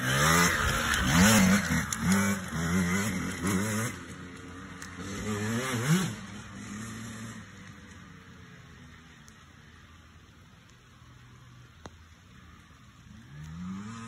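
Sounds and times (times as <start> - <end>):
dirt bike engine revving: 0.0 - 7.6, 13.2 - 14.0.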